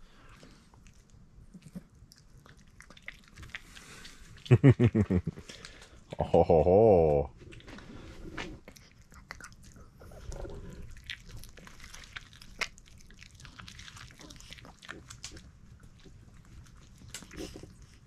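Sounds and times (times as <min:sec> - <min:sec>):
small dog chewing: 0:00.2 - 0:04.5, 0:08.6 - 0:18.0.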